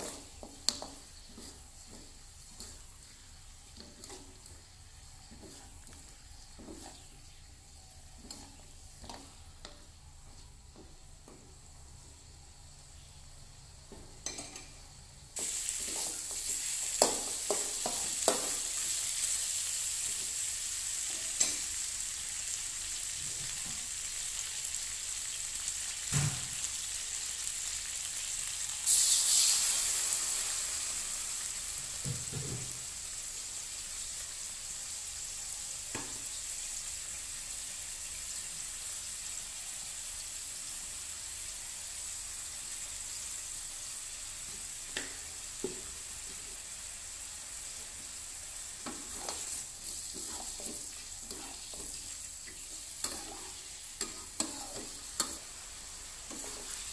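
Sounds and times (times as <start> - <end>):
chicken sizzling in sauce: 0.0 - 14.6, 15.4 - 56.9
metal spatula scraping pan: 48.8 - 55.4, 56.3 - 56.9.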